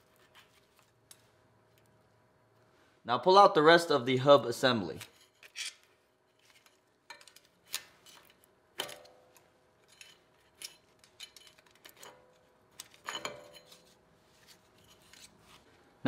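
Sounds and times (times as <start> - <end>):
picks scraping metal parts: 5.0 - 15.4.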